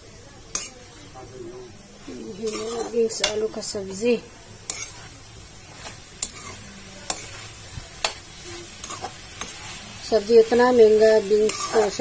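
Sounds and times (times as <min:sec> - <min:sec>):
faint sizzle: 0:00.0 - 0:12.0
spoon clicking against a pan: 0:07.1 - 0:07.3, 0:08.0 - 0:08.2.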